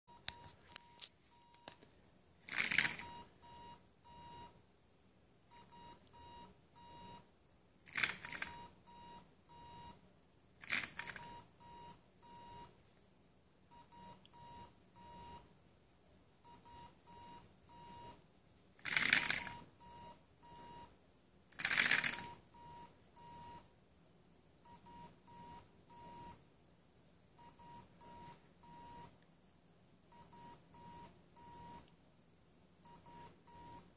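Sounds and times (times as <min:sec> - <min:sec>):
burst of rattling noise: 0:02.4 - 0:03.1
electronic buzzer beeping: 0:02.8 - 0:04.5, 0:05.5 - 0:07.2, 0:08.0 - 0:10.0, 0:22.0 - 0:23.6, 0:24.7 - 0:26.4, 0:27.4 - 0:29.1, 0:30.2 - 0:31.8.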